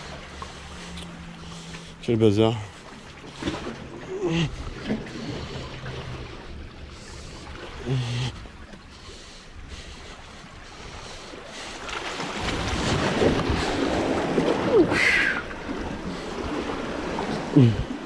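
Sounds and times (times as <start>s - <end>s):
sea waves washing among rocks: 9.2s - 18.0s.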